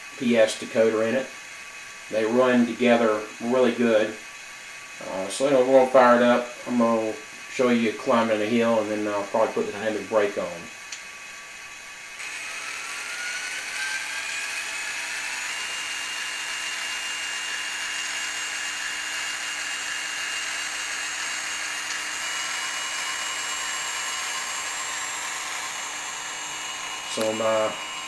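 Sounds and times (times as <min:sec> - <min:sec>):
model motor and gears humming: 0:00.0 - 0:28.0
rising whine: 0:11.5 - 0:28.0.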